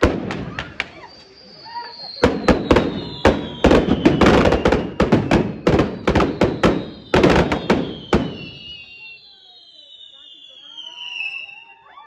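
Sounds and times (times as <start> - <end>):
firecrackers banging: 0.0 - 9.0
faint high whistle sliding down: 0.4 - 5.0, 6.7 - 12.0.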